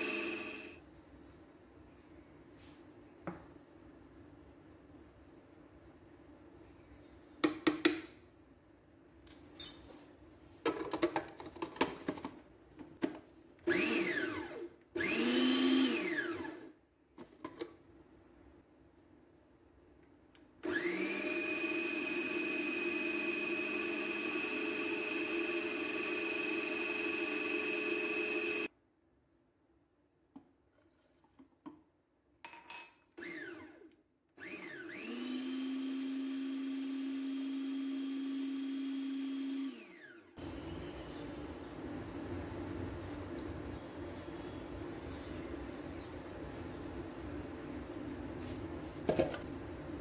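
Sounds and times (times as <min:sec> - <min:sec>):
food processor motor whining: 0:00.0 - 0:00.8, 0:13.7 - 0:16.7, 0:20.6 - 0:28.7, 0:33.2 - 0:40.4.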